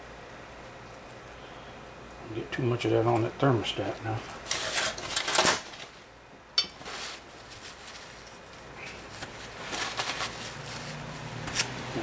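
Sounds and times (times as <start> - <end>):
gloved hands rustling and scraping: 6.6 - 12.0.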